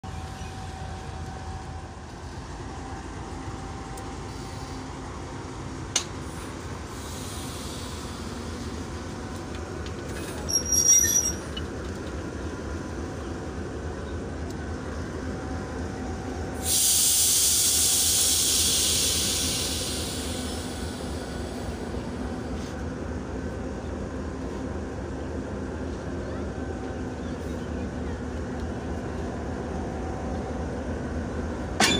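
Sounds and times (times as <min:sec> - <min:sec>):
diesel locomotive engine droning: 0:00.0 - 0:31.9
compressed air hissing: 0:06.9 - 0:08.6, 0:16.6 - 0:21.8
high metallic squeal: 0:10.5 - 0:11.5.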